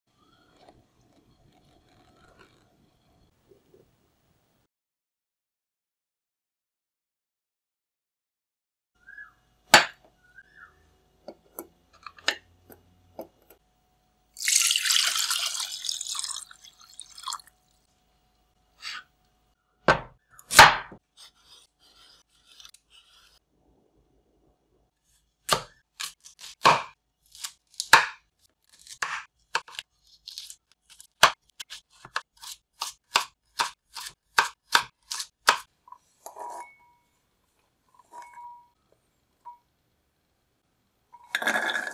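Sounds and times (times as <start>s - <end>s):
running water: 14.4s - 17.7s
knocks on wooden cutting board: 19.9s - 21.0s
knife chopping carrot on board: 19.9s - 21.4s, 25.5s - 28.2s, 28.8s - 29.8s, 30.9s - 35.7s
peeler scraping carrot: 21.1s - 23.4s.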